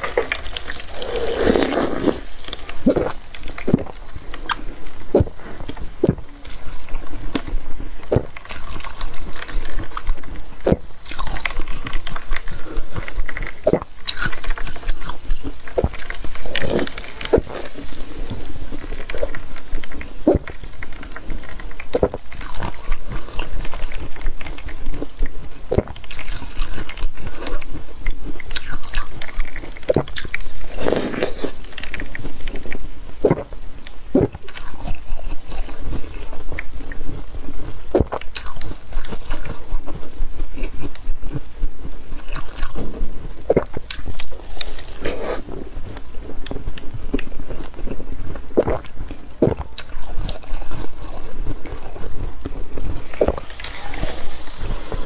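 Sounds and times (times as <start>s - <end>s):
crunching slushy ice: 0.0s - 41.5s, 42.2s - 55.0s
slurping and sucking: 0.0s - 55.0s
liquid dripping: 45.8s - 55.0s.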